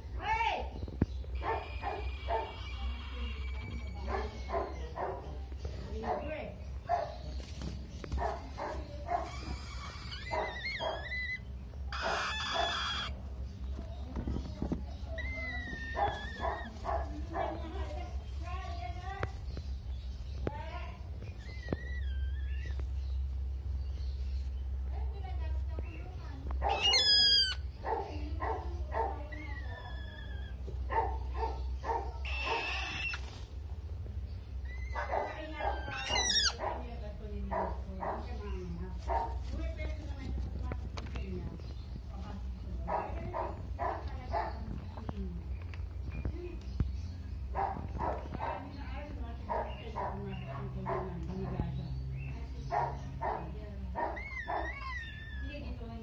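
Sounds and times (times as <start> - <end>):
parrot chicks calling: 0.0 - 56.0
parrot chick squawking: 1.3 - 5.0, 8.4 - 13.3, 15.0 - 17.9, 21.2 - 22.9, 26.6 - 28.2, 29.2 - 33.4, 34.6 - 36.9, 53.0 - 55.8.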